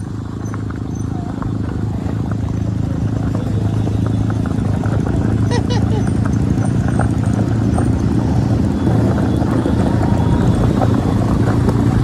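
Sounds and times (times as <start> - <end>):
motorcycle engine rumbling: 0.0 - 12.0.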